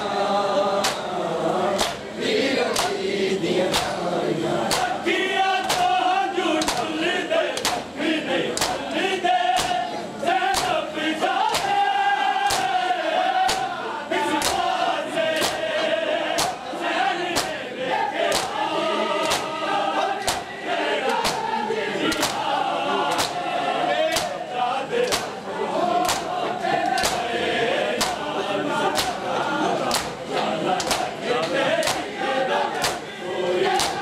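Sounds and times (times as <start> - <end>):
men chanting together: 0.0 - 34.0
hands slapping chests: 0.8 - 1.1, 1.8 - 2.0, 2.7 - 3.0, 3.7 - 4.0, 4.7 - 4.9, 5.6 - 5.9, 6.6 - 6.9, 7.6 - 7.9, 8.6 - 8.8, 9.6 - 9.8, 10.5 - 10.8, 11.5 - 11.8, 12.5 - 12.8, 13.4 - 13.7, 14.4 - 14.7, 15.4 - 15.6, 16.4 - 16.6, 17.4 - 17.6, 18.3 - 18.6, 19.2 - 19.5, 20.2 - 21.4, 22.1 - 22.5, 23.1 - 23.4, 24.1 - 24.4, 25.0 - 25.4, 26.0 - 27.3, 28.0 - 28.2, 28.9 - 29.2, 29.9 - 30.2, 30.8 - 32.1, 32.8 - 33.0, 33.8 - 34.0.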